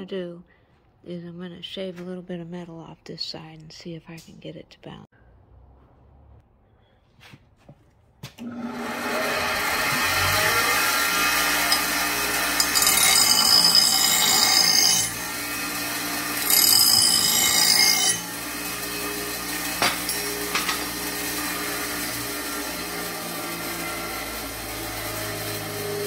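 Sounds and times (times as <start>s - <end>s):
bench grinder running: 8.4s - 26.0s.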